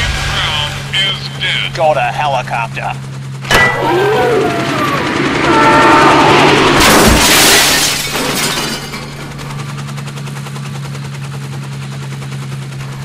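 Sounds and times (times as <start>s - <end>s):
steady low hum: 0.0s - 13.0s
loud crash of something smashing: 6.6s - 9.2s.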